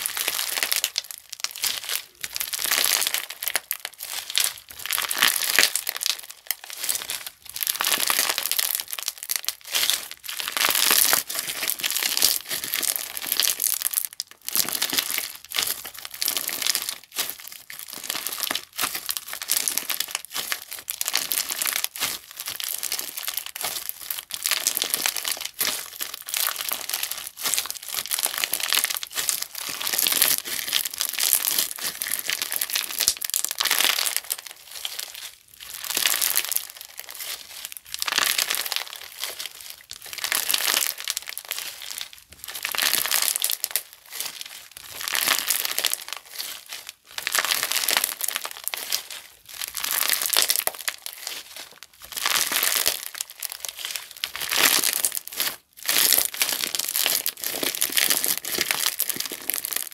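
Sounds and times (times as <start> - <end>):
crunchy slime crackling: 0.0 - 59.9.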